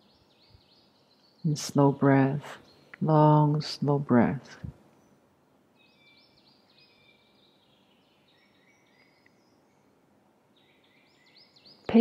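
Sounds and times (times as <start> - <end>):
faint birds chirping: 0.0 - 12.0.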